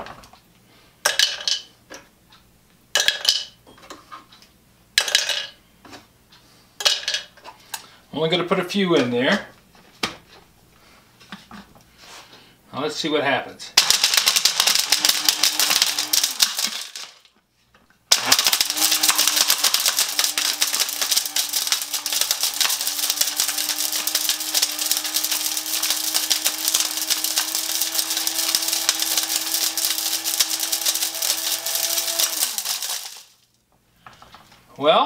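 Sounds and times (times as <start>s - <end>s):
bottle caps clattering in blender: 1.0s - 1.7s, 3.0s - 3.6s, 5.0s - 5.6s, 6.8s - 7.4s, 13.8s - 17.3s, 18.1s - 33.4s
blender motor hum: 13.8s - 17.1s, 18.1s - 33.3s.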